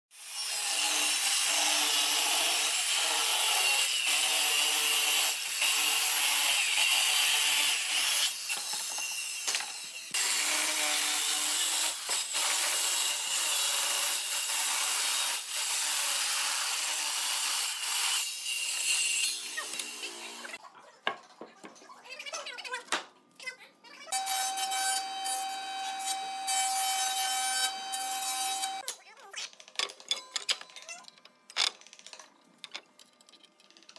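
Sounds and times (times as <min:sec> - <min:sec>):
circular saw cutting wood: 0:00.2 - 0:20.6, 0:24.1 - 0:28.8
saw motor high whine: 0:24.2 - 0:28.8.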